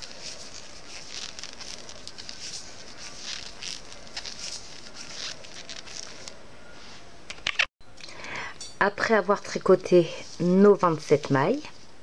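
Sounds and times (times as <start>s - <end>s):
yarn swishing over needles: 0.0s - 7.0s.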